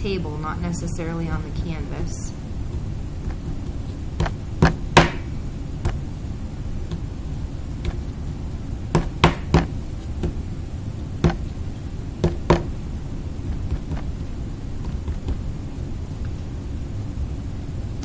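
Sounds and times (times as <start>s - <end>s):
low room rumble: 0.0s - 18.0s
hands rolling clay: 1.7s - 16.5s
knocks on tabletop: 12.2s - 12.7s.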